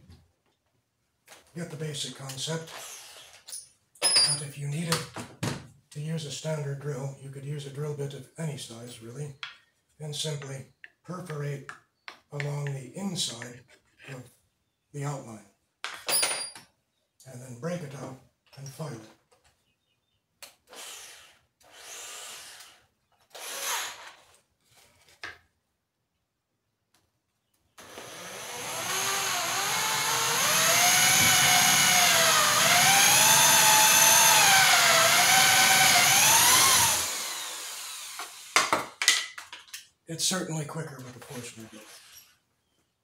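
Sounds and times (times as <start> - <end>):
drill press boring wood: 20.7 - 24.2, 27.8 - 38.6
short scraping sounds: 41.1 - 42.5.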